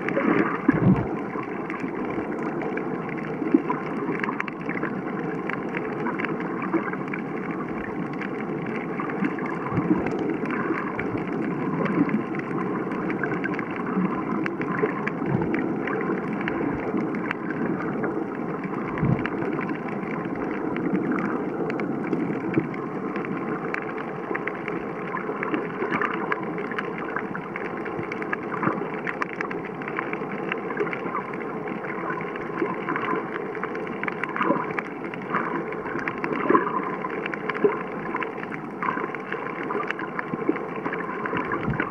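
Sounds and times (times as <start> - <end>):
muffled underwater rushing hiss: 0.0 - 41.9
small clicks and crackles: 0.0 - 41.9
soft low thumps: 0.7 - 1.1, 15.3 - 15.6, 18.9 - 19.4.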